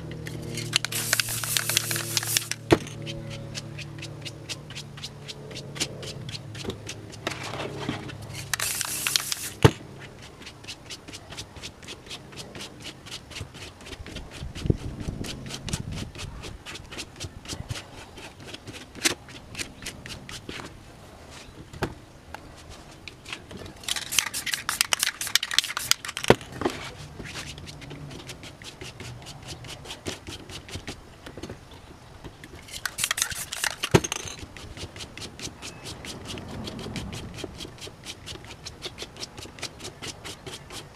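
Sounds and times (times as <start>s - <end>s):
hands rubbing paper: 0.4s - 21.5s, 22.4s - 31.0s, 32.6s - 40.9s
spray paint can bursts: 0.5s - 4.4s, 8.3s - 9.8s, 23.8s - 26.4s, 32.6s - 34.1s.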